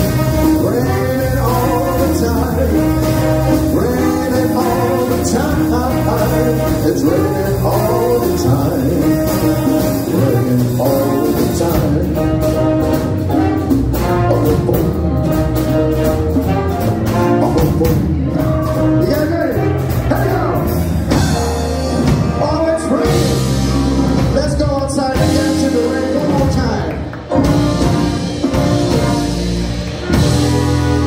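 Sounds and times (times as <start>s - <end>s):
big band swing music: 0.0s - 31.0s.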